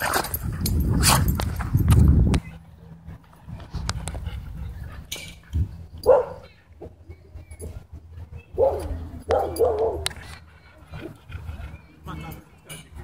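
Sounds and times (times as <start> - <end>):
dog barking: 6.0 - 6.4, 8.6 - 10.1.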